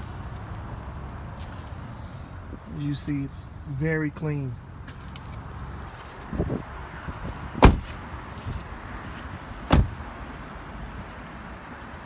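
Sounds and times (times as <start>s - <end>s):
car doors shutting: 7.5s - 8.0s, 9.6s - 10.0s.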